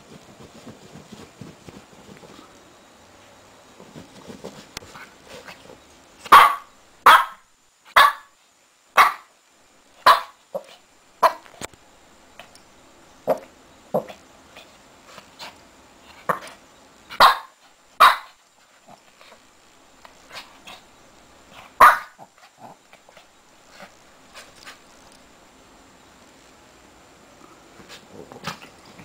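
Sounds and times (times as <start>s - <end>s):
puppy barking and yipping: 6.3s - 7.4s, 8.0s - 8.3s, 17.2s - 18.4s, 21.8s - 22.3s.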